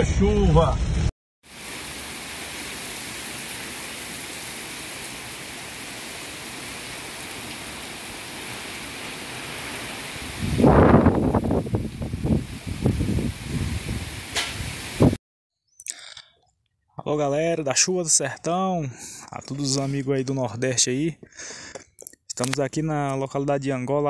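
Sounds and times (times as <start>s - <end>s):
heavy rain on concrete: 1.4s - 15.2s.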